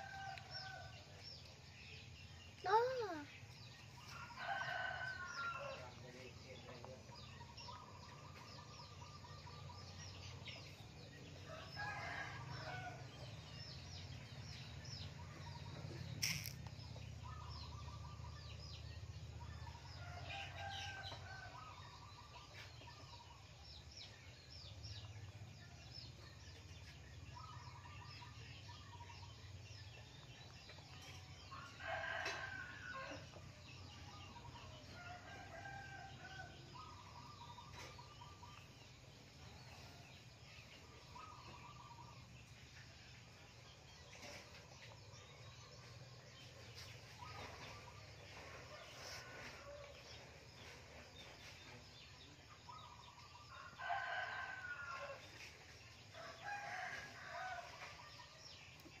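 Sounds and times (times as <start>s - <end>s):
small birds chirping: 0.0s - 59.0s
rooster crowing: 4.2s - 5.9s
sharp click: 16.2s - 16.7s.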